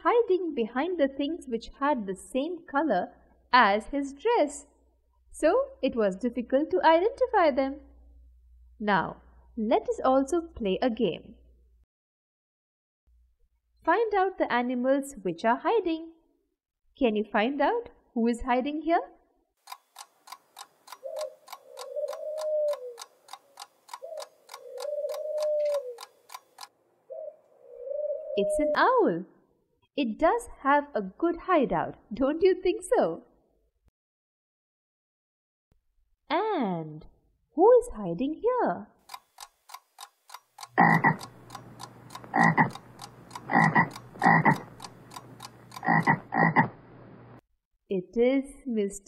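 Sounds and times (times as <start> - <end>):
clock ticking: 19.7 - 26.7, 39.1 - 46.7
frog croaking: 40.8 - 41.6, 42.3 - 46.8.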